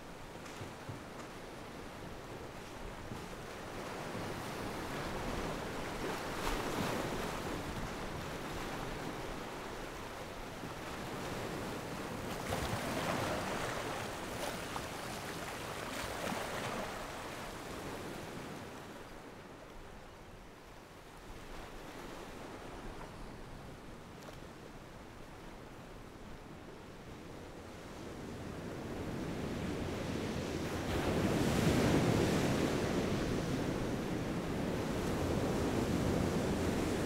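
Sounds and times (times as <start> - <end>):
sea waves breaking on beach: 2.2 - 19.3, 30.5 - 37.0.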